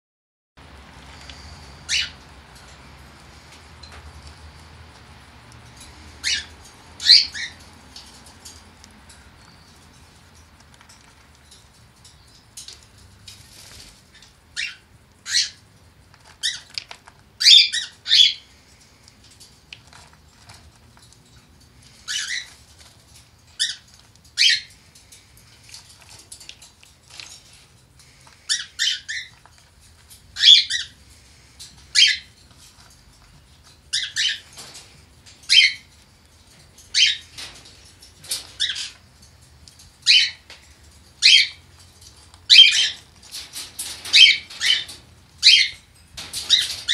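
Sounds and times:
cat litter rattling in a tray: 15.6 - 46.9.

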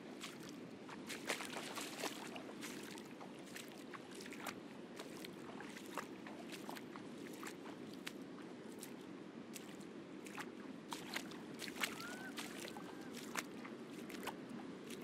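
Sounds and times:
feet splashing in shallow water: 0.0 - 15.0.

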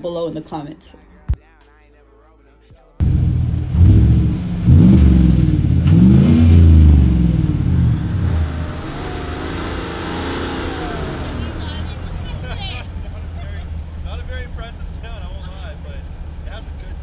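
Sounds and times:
pickup truck engine accelerating: 3.0 - 17.0.

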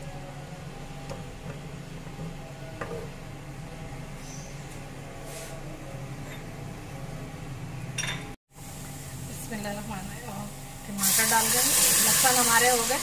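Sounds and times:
low kitchen hum: 0.0 - 13.0
garlic frying in oil: 9.4 - 13.0.

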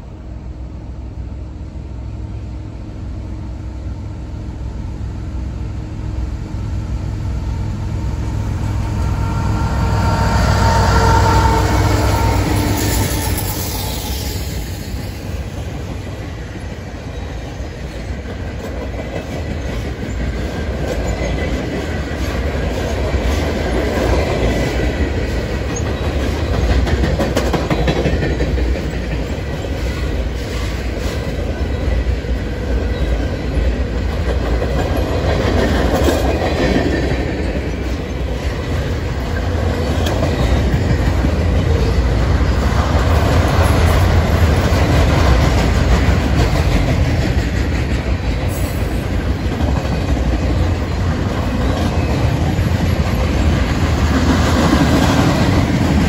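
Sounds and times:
train wheels rumbling on rail: 0.0 - 56.0
wheels clicking over rail joints: 15.6 - 56.0.

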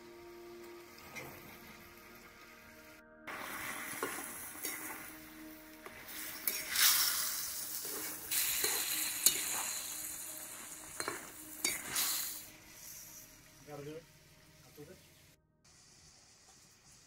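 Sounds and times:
curry sizzling in a pan: 3.3 - 17.0
spatula scraping a metal pan: 6.1 - 13.2.

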